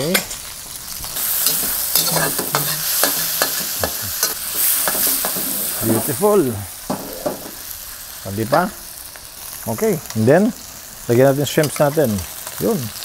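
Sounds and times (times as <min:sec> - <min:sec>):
meat sizzling in hot oil: 0:00.0 - 0:13.0
metal spatula scraping a wok: 0:00.8 - 0:06.1.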